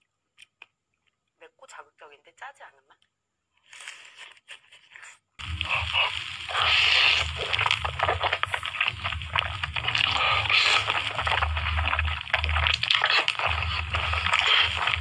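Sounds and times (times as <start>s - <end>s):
wet eating sounds: 3.7s - 15.0s
noodle slurping: 5.4s - 15.0s.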